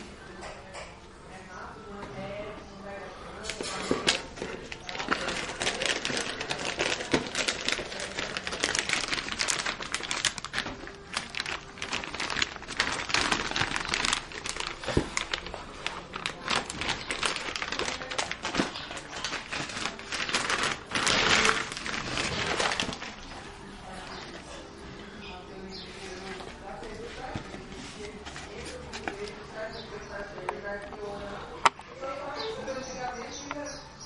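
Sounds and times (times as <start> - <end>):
plastic bag crinkling: 3.4 - 24.6.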